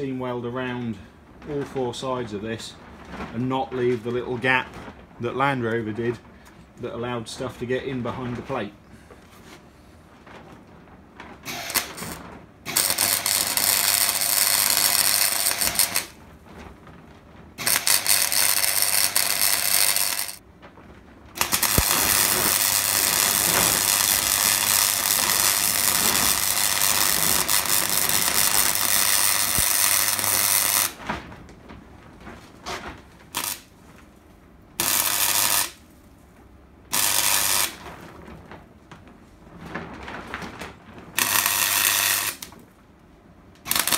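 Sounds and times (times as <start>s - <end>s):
low welder buzz: 11.4s - 16.2s, 17.5s - 20.4s, 21.3s - 31.1s, 33.2s - 33.8s, 34.8s - 36.0s, 36.8s - 38.0s, 41.1s - 42.7s, 43.6s - 43.9s
welding arc crackling hiss: 11.4s - 16.2s, 17.6s - 20.4s, 21.4s - 31.0s, 33.3s - 33.7s, 34.8s - 35.8s, 36.9s - 37.8s, 41.2s - 42.5s, 43.6s - 43.9s.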